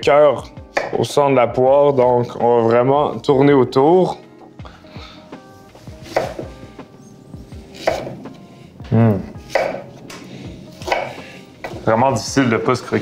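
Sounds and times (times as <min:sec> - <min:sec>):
faint background music: 0:00.0 - 0:13.0
knife cutting onto wooden board: 0:00.7 - 0:01.0, 0:06.0 - 0:06.6, 0:07.7 - 0:08.4, 0:09.4 - 0:11.8.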